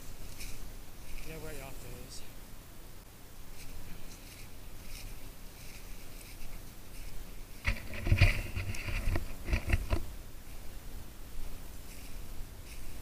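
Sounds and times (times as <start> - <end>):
footsteps through dry grass: 0.0 - 2.0, 3.5 - 9.8, 11.4 - 13.0.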